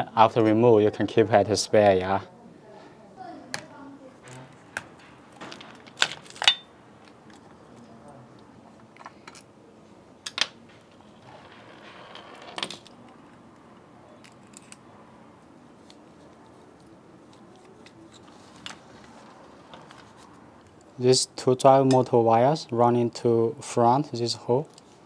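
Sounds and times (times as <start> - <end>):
small parts clicking and clattering: 14.2 - 14.8.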